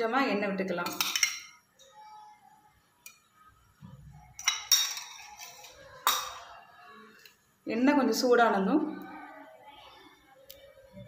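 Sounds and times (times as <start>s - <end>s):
spoon clinking on metal cookware: 0.8s - 1.6s, 4.4s - 6.5s.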